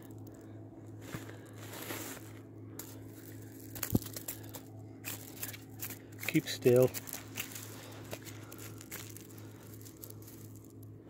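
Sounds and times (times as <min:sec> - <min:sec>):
pebbles crunching and clicking: 0:00.0 - 0:11.0
fish flapping on pebbles: 0:01.0 - 0:11.0
stones clacking: 0:02.8 - 0:10.9.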